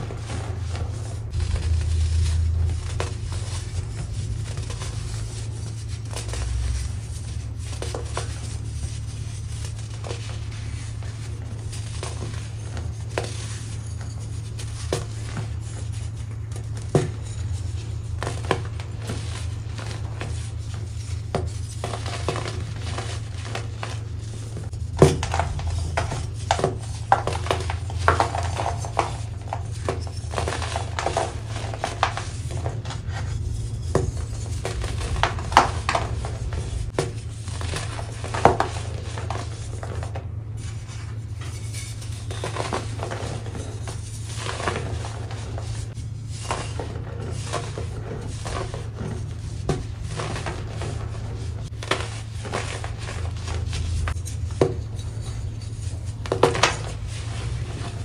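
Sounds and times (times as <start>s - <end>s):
baking soda crunching: 0.0s - 8.6s.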